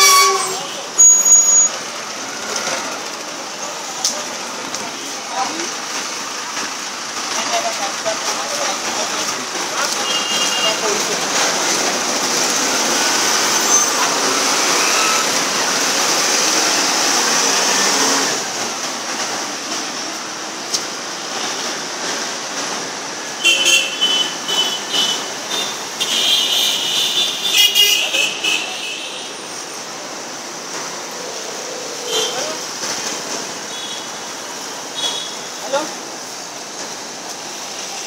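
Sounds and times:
vehicle horns honking: 0.0 - 1.8, 10.0 - 11.0, 23.4 - 29.4
street traffic: 0.0 - 38.0.

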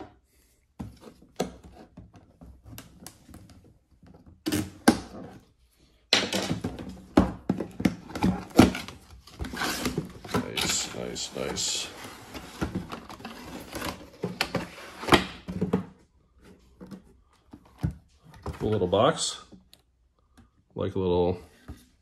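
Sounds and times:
cardboard rustling and scraping: 6.6 - 19.2.

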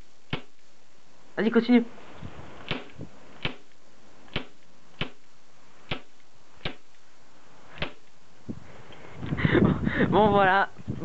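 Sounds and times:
airsoft pistol shots popping: 2.7 - 3.7, 4.3 - 5.2, 5.8 - 6.9, 7.7 - 8.0.

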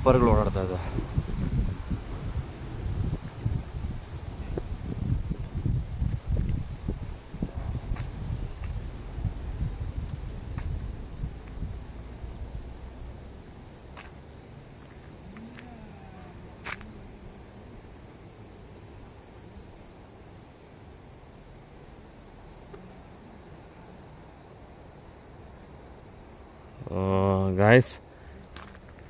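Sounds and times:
low rumble: 0.0 - 13.6
night insects trilling: 0.0 - 29.0.

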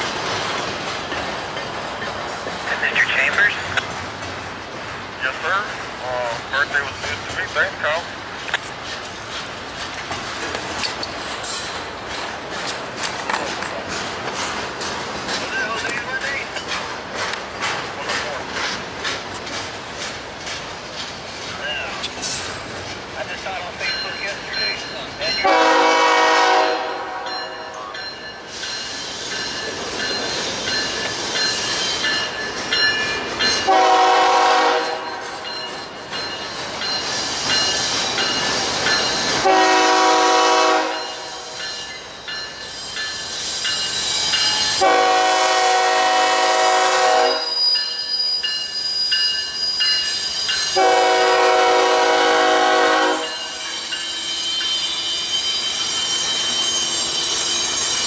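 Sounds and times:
freight train rumbling past: 0.0 - 58.0
locomotive air horn blasts: 25.4 - 27.3, 33.7 - 35.1, 39.4 - 41.4, 44.8 - 47.6, 50.8 - 53.5.

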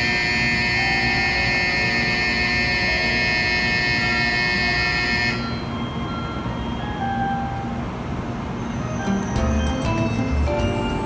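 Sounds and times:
train humming at platform: 0.0 - 11.0
electric departure bell ringing: 5.4 - 11.0.

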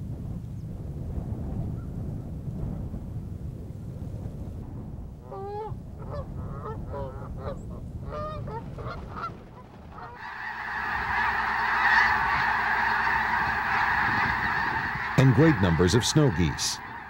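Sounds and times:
large flock of geese calling: 5.3 - 17.0
geese honking: 7.0 - 17.0.

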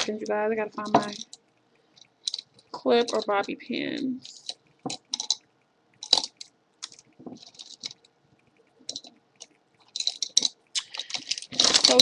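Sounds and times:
hands rummaging small objects: 0.0 - 1.4, 2.2 - 3.5, 4.2 - 5.4, 6.0 - 8.0, 9.8 - 12.0.

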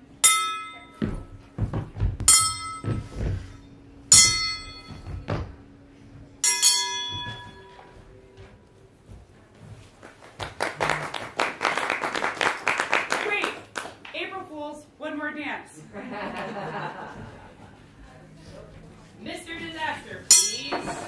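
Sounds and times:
metal pan struck ringing: 0.2 - 1.0, 2.3 - 2.9, 4.1 - 5.0, 6.4 - 7.8, 20.3 - 21.0
dull thuds: 1.0 - 5.8
applause: 10.0 - 14.1.

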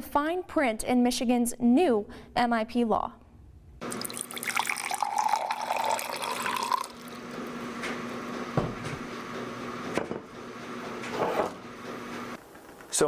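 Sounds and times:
liquid pouring into a glass: 3.8 - 7.4.

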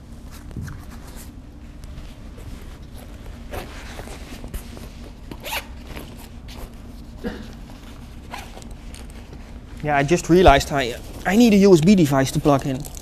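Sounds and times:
zipper being pulled: 5.4 - 6.1, 8.3 - 9.0.

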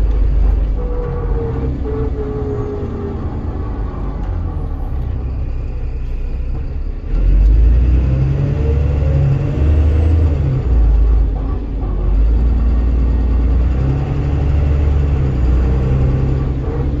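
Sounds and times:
bus engine rumbling: 0.0 - 17.0
rising engine whine: 0.0 - 17.0.

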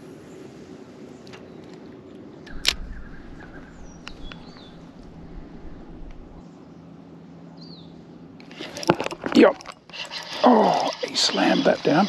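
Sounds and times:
birds calling and whistling: 1.1 - 8.9, 9.8 - 12.0
sharp click: 2.4 - 3.0
low rumble: 2.5 - 6.4.

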